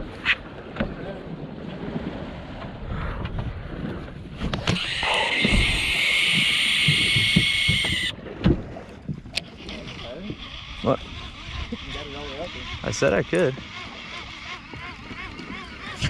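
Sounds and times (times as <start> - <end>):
wind on microphone: 0.0 - 16.0
fishing reel spool whirring: 4.7 - 8.2, 9.3 - 16.0.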